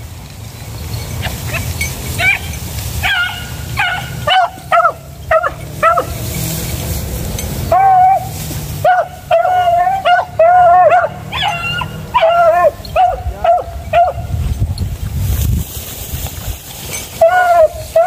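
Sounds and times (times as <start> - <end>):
dog yelping barks: 1.2 - 6.2, 7.7 - 14.3, 17.2 - 18.0
dog drawn-out cry: 1.4 - 6.2, 7.7 - 14.3, 17.2 - 18.0.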